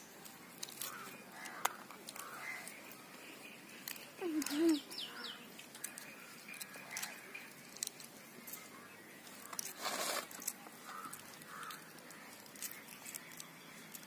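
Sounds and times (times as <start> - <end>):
children chewing: 0.0 - 14.0
rustling: 5.6 - 14.0.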